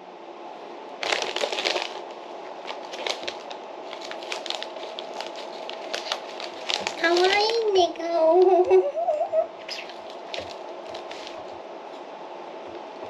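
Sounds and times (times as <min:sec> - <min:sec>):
potato chips crunching: 0:01.0 - 0:02.1, 0:02.7 - 0:07.7
foil bag crinkling: 0:01.0 - 0:07.9, 0:09.8 - 0:11.5.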